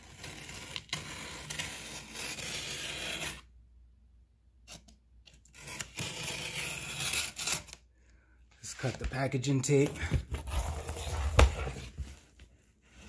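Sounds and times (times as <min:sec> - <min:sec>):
utility knife slicing packing tape: 0:00.0 - 0:03.4, 0:05.5 - 0:07.8.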